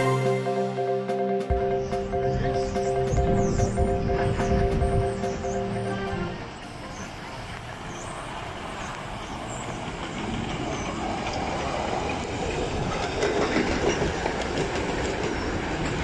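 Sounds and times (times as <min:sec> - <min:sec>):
steam locomotive running past: 0:00.0 - 0:16.0
wheels clicking over rail joints: 0:08.9 - 0:16.0.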